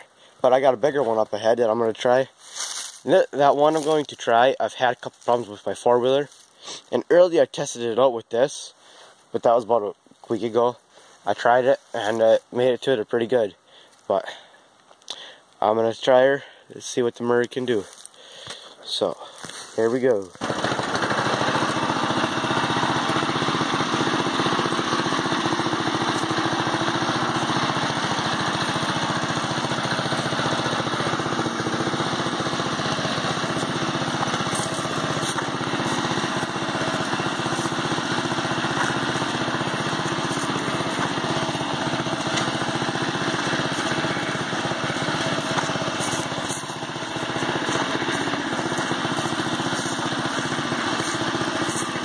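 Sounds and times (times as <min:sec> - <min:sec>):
riding lawn mower engine running: 0:00.0 - 0:06.4, 0:20.1 - 0:52.0.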